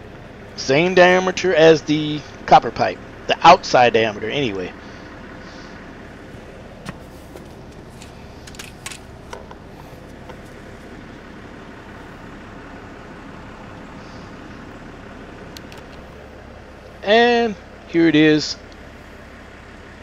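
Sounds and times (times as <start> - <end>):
low background hum: 0.0 - 20.0.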